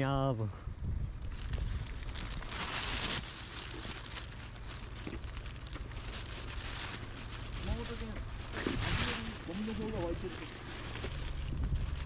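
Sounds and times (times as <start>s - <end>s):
plastic bag rustling: 1.2s - 12.0s.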